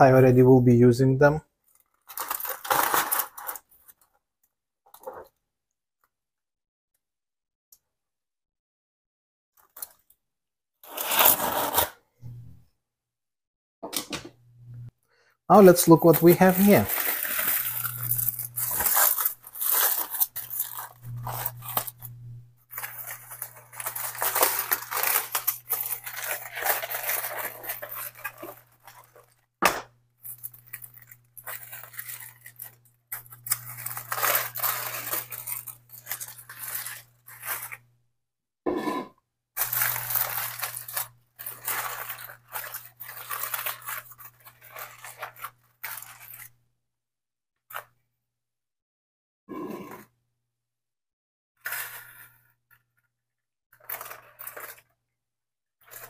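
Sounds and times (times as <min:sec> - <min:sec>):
aluminium foil crinkling and tearing: 0:01.6 - 0:04.1, 0:10.8 - 0:11.9, 0:15.5 - 0:22.1, 0:22.7 - 0:29.5, 0:30.2 - 0:37.8, 0:39.6 - 0:46.6, 0:53.8 - 0:54.9.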